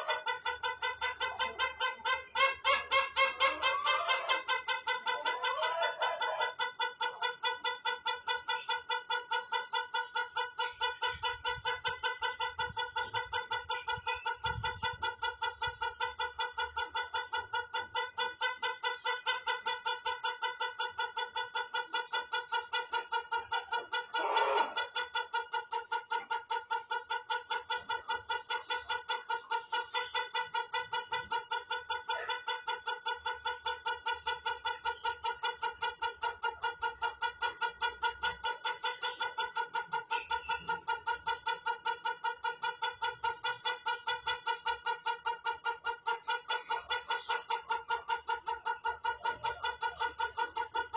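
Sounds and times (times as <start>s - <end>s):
rooster crowing: 5.3s - 6.5s, 24.2s - 24.8s.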